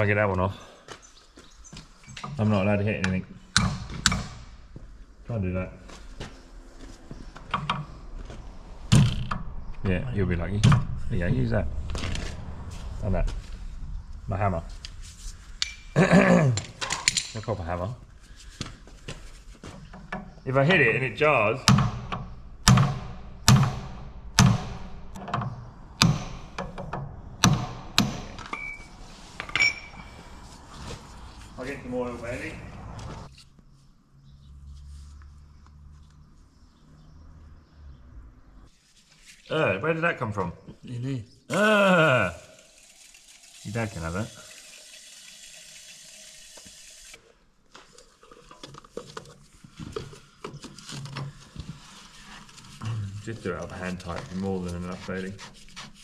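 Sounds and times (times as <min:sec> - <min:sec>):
steady hiss: 0:08.8 - 0:19.6
metallic ring: 0:28.2 - 0:30.2
hammer striking metal spanner: 0:29.4 - 0:30.0
gloved hands rubbing and scraping: 0:38.7 - 0:39.5, 0:47.7 - 0:56.0.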